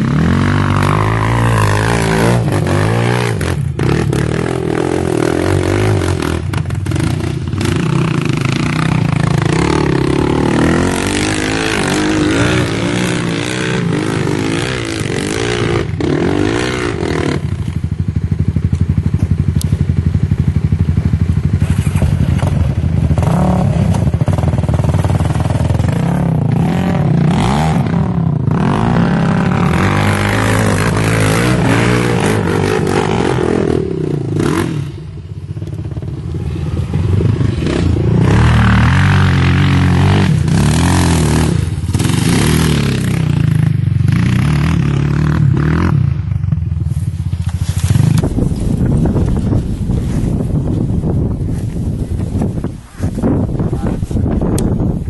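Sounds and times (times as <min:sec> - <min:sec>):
quad engines revving: 0:00.0 - 0:17.8, 0:21.5 - 0:46.3.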